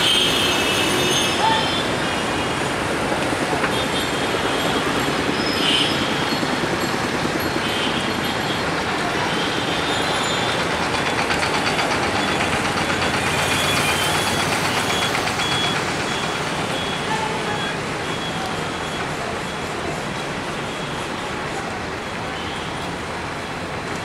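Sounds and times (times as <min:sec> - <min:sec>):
city traffic: 0:00.0 - 0:24.0
train rumbling: 0:00.0 - 0:24.0
short high beeps: 0:12.2 - 0:19.7.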